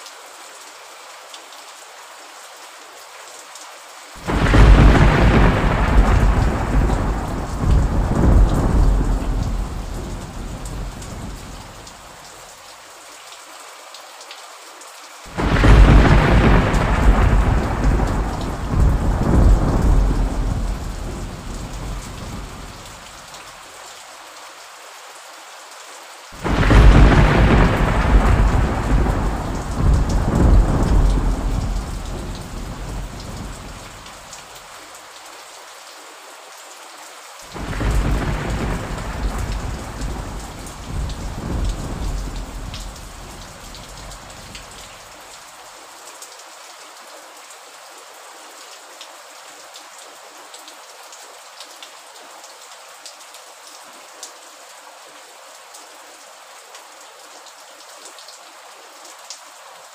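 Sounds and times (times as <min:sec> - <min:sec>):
rain hissing: 0:04.0 - 0:12.6, 0:15.2 - 0:23.9, 0:26.1 - 0:34.8, 0:37.4 - 0:45.4
thunder claps rumbling: 0:04.2 - 0:11.7, 0:15.4 - 0:22.9, 0:26.4 - 0:34.1, 0:37.6 - 0:44.8.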